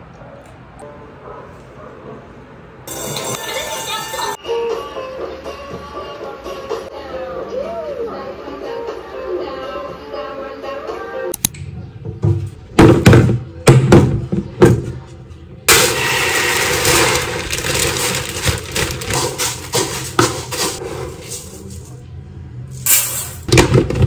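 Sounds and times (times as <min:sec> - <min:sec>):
rice pouring into plastic bin: 0:15.7 - 0:20.7.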